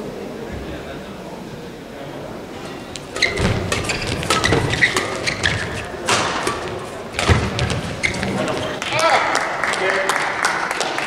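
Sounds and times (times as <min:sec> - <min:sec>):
shoes squeaking on court: 0:02.7 - 0:08.8
rackets striking shuttlecock: 0:03.0 - 0:07.9
feet thumping on court: 0:03.2 - 0:08.8.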